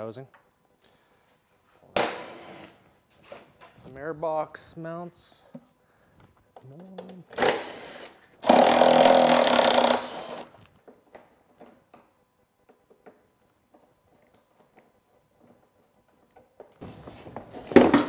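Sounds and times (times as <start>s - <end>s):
power drill: 2.0s - 2.8s, 7.3s - 10.5s.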